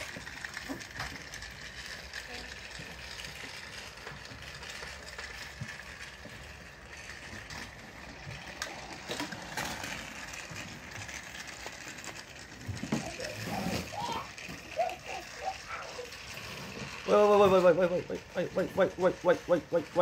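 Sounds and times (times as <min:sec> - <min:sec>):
toy train motor whirring: 0:00.0 - 0:20.0.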